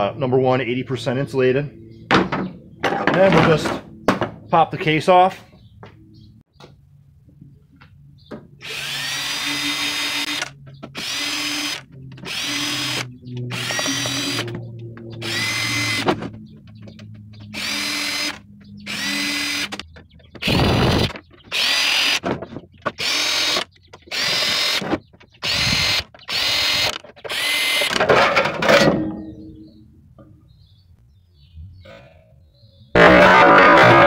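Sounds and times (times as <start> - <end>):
cordless drill motor whine: 8.6 - 16.1, 17.5 - 19.8, 20.4 - 22.2, 23.0 - 24.8, 25.4 - 27.9.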